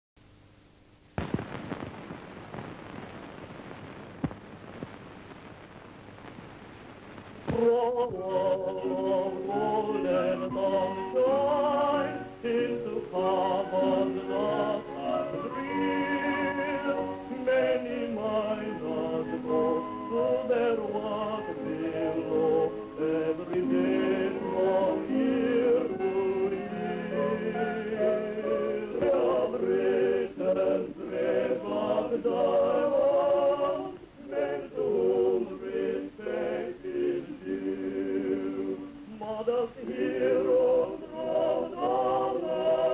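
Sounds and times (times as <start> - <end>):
choir singing with vibrato: 7.5 - 42.9.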